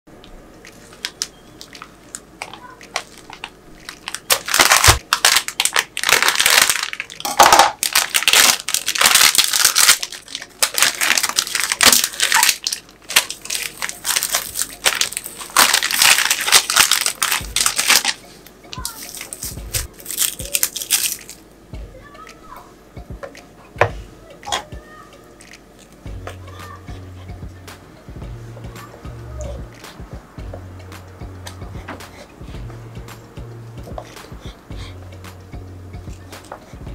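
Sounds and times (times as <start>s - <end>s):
plastic wrapper crinkling: 2.9s - 18.2s, 18.8s - 21.4s.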